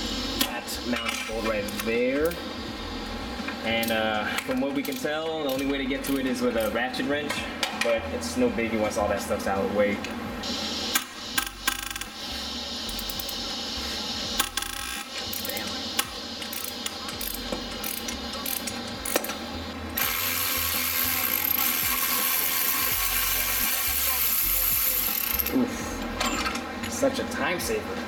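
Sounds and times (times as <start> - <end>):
ratchet wrench clicking: 4.8 - 6.8, 12.9 - 13.4, 14.4 - 19.3, 20.0 - 25.6
electric ratchet running: 10.4 - 25.6.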